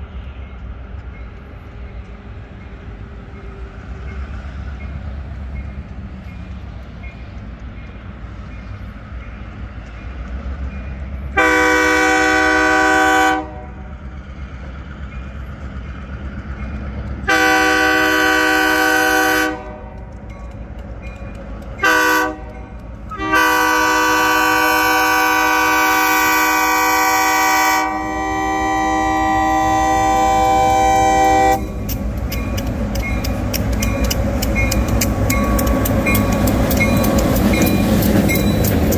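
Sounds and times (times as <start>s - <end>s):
locomotive rumble: 0.0s - 38.9s
locomotive air horn blasts: 11.4s - 13.8s, 17.3s - 20.0s, 21.8s - 31.7s.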